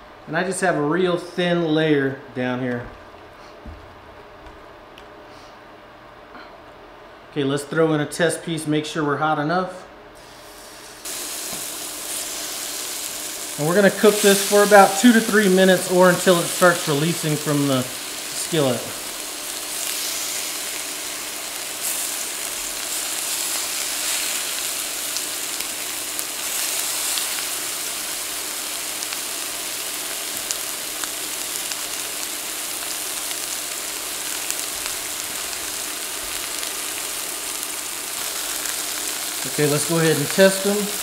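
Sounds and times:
meat sizzling in oil: 10.2 - 41.0
small crackles: 28.8 - 41.0.

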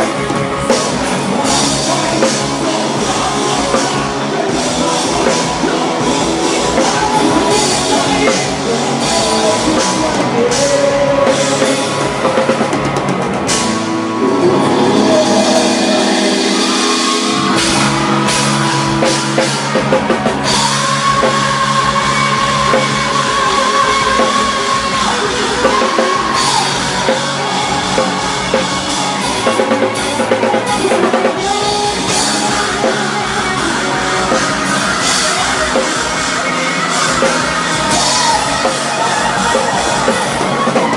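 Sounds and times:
man singing into a microphone: 0.0 - 12.8, 14.1 - 40.9
rock band music: 0.0 - 40.9.

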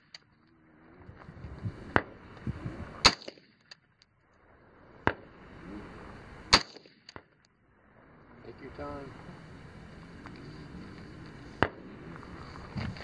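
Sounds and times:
rifle shots: 3.0 - 3.8, 6.5 - 7.4.

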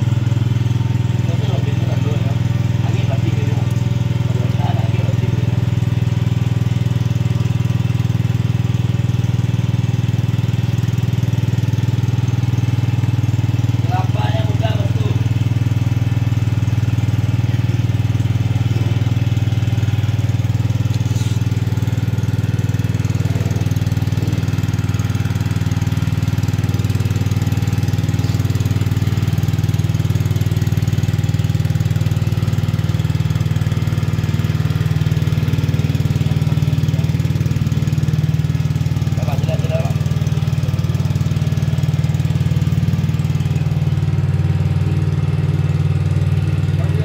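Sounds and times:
pressing machine motor humming: 15.1 - 47.0.

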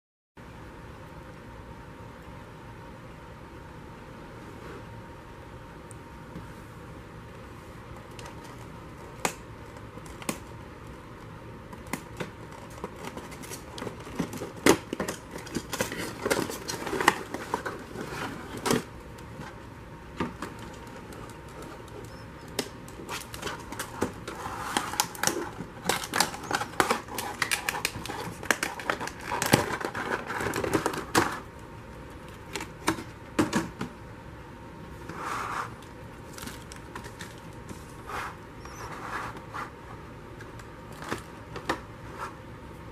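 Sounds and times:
plastic packaging crinkling: 11.8 - 19.7, 20.3 - 33.0, 35.8 - 38.1.

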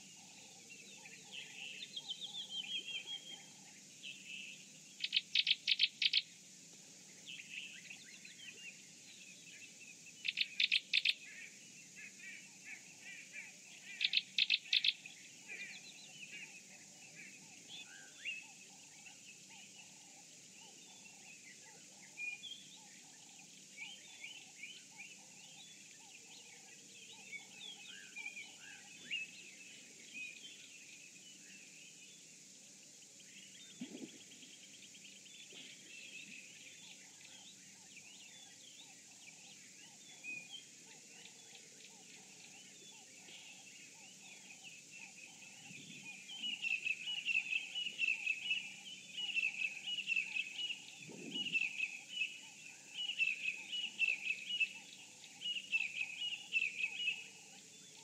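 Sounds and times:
birds chirping: 33.6 - 58.0.

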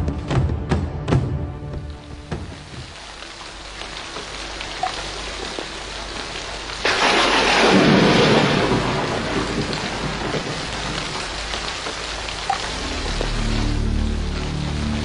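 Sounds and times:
steady rain falling: 1.6 - 15.0
thunder clap rumbling: 6.8 - 14.3.

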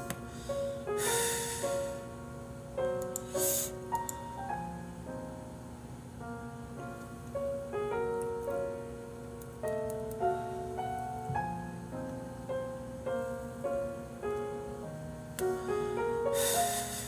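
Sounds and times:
soft piano music: 0.0 - 17.0.

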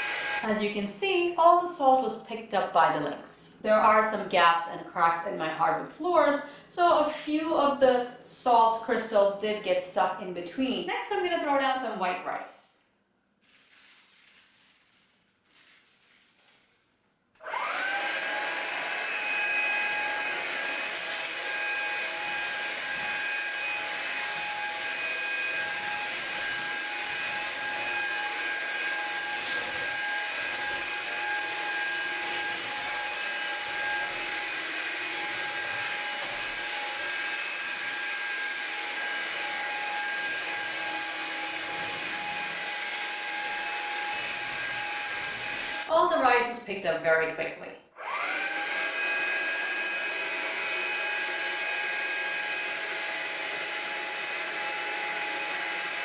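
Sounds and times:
vacuum cleaner whining: 0.0 - 0.5, 17.4 - 45.9, 48.0 - 56.0.

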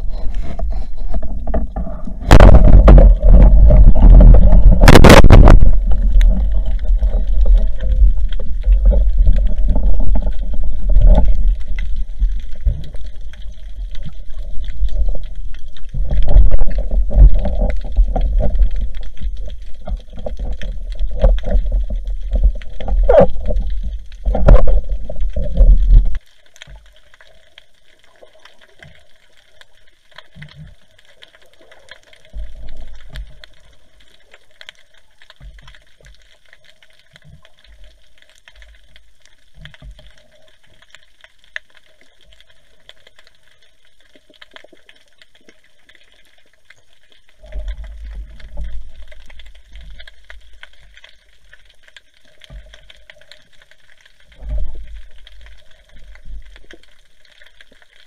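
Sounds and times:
low underwater rumbling: 0.0 - 58.0
faint steady hiss: 5.7 - 58.0.

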